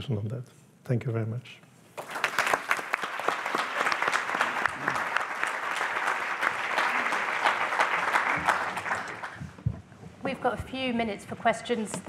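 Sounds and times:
audience applauding: 2.0s - 9.5s.

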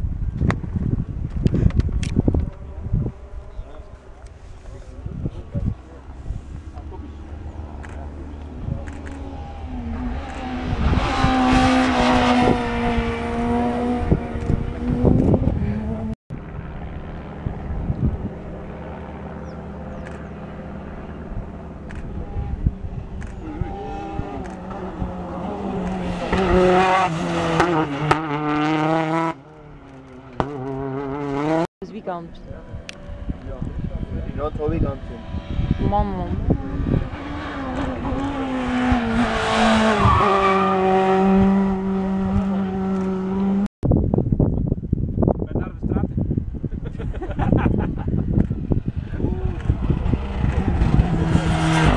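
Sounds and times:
distant rally car engine drone: 0.0s - 51.9s
rally car engine revving high: 4.8s - 16.2s, 17.4s - 31.7s, 32.6s - 43.7s, 47.1s - 51.9s
tyre noise on road: 46.9s - 51.9s.

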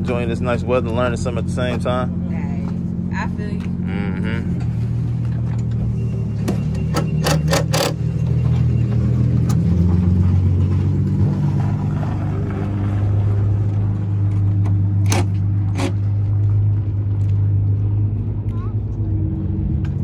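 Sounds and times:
vehicle engine idling: 0.0s - 20.0s.

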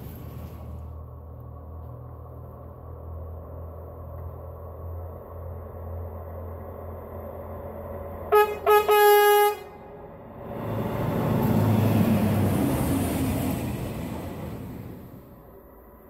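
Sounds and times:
machine horn toots: 8.3s - 9.8s.

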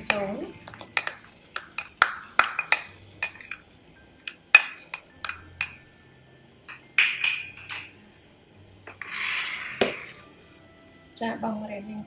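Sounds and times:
spoon clinking against a pot: 0.0s - 8.0s.

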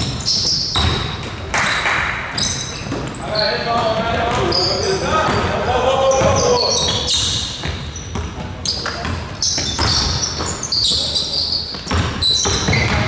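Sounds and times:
basketball bouncing on gym floor: 0.0s - 13.0s
shoe squeaks: 0.0s - 13.0s
people's voices: 3.1s - 7.2s.

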